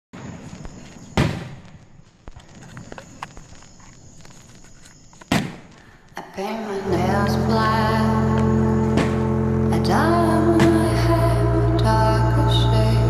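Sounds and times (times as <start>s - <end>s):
fireworks popping and crackling: 0.2s - 6.8s
fireworks booming: 0.2s - 13.0s.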